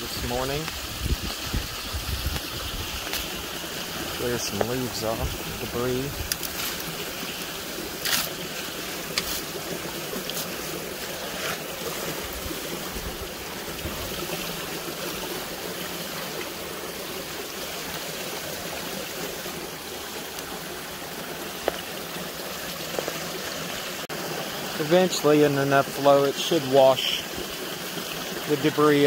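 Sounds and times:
hand sweeping wet leaves: 0:00.0 - 0:16.4
water rushing and splashing: 0:00.0 - 0:29.0.

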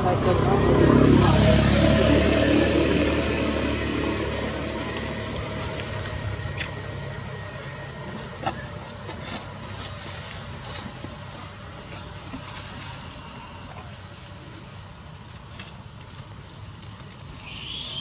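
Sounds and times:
vehicle engine passing: 0:00.0 - 0:10.3.

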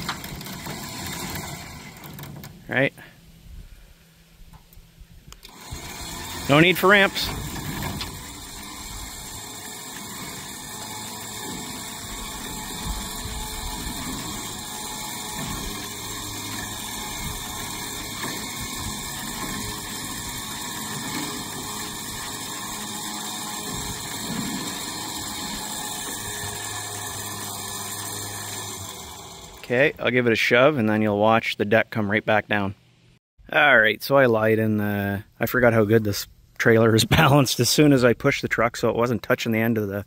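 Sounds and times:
electric winch motor running: 0:00.0 - 0:02.6, 0:05.4 - 0:29.8.

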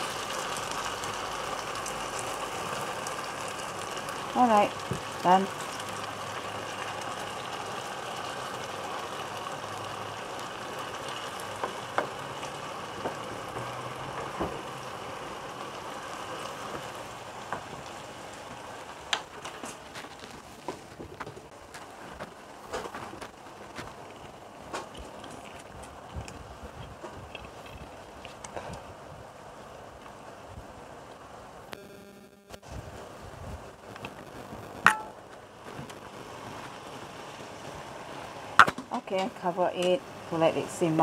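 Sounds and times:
meat simmering bubbling sizzle: 0:00.0 - 0:31.7, 0:32.6 - 0:41.0
sharp clicks and pops: 0:33.9 - 0:36.0, 0:38.6 - 0:39.0.

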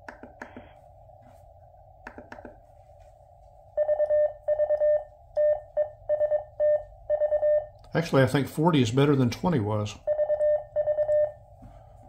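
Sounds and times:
morse code tone: 0:03.8 - 0:07.7, 0:10.1 - 0:11.4.

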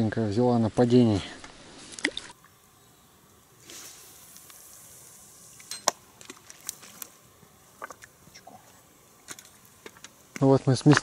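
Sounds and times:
short hiss: 0:03.6 - 0:06.0.

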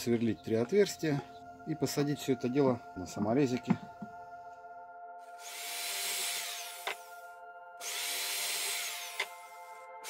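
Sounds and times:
faint background music: 0:00.0 - 0:10.0
electric drill boring through wood: 0:05.3 - 0:09.9.

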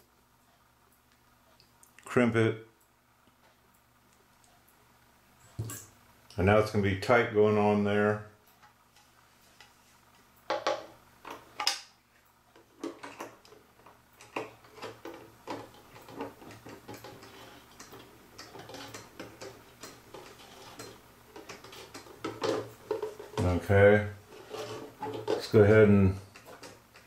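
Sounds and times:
clock parts clicking and scraping: 0:14.2 - 0:23.3, 0:24.3 - 0:25.6.

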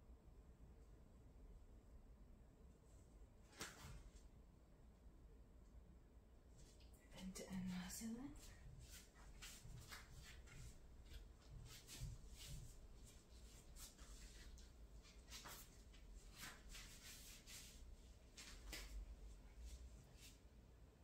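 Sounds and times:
rustles on exercise mat: 0:07.6 - 0:20.5.

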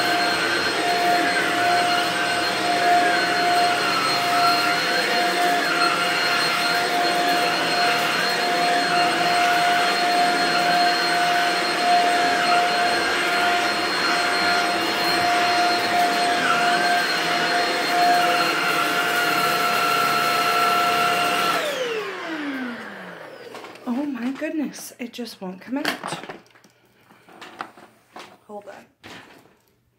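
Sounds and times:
vacuum motor spinning down: 0:00.0 - 0:23.8
stick vacuum running over carpet: 0:00.0 - 0:24.6.

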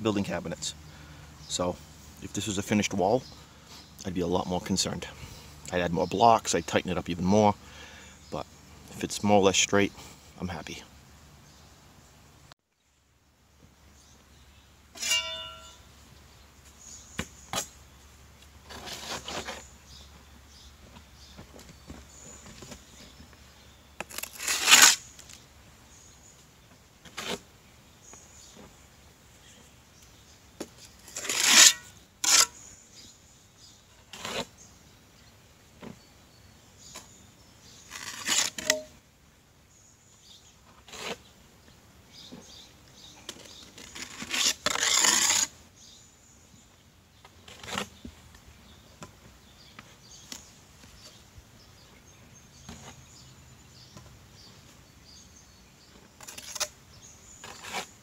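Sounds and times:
trowel scraping mortar: 0:18.7 - 0:19.7, 0:24.0 - 0:25.0, 0:31.0 - 0:32.7, 0:34.0 - 0:34.5, 0:37.8 - 0:38.9, 0:40.8 - 0:41.2, 0:43.3 - 0:45.6, 0:56.1 - 0:58.0.

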